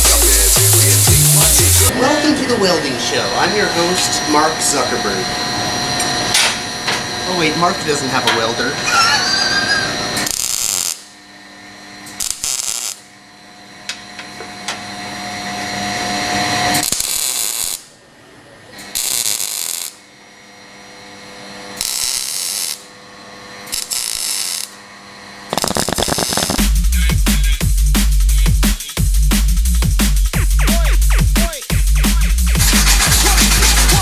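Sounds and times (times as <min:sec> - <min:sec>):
welding arc crackle: 0:00.0 - 0:01.9, 0:10.2 - 0:11.2, 0:12.0 - 0:13.1, 0:16.7 - 0:17.9, 0:18.8 - 0:20.0, 0:21.7 - 0:22.9, 0:23.7 - 0:24.8, 0:25.5 - 0:26.8, 0:32.6 - 0:34.0.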